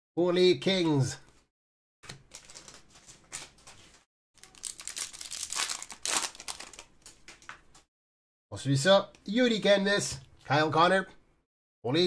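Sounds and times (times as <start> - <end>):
foil wrapper tearing and crinkling: 4.4 - 7.2.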